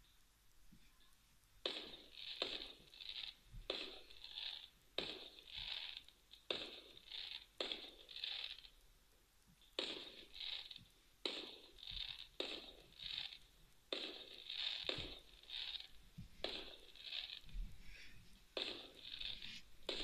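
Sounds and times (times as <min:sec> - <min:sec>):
fireworks bangs through phone speaker: 0:01.6 - 0:02.8, 0:03.6 - 0:04.1, 0:09.8 - 0:13.3, 0:13.9 - 0:15.2, 0:16.4 - 0:17.4, 0:18.6 - 0:20.0.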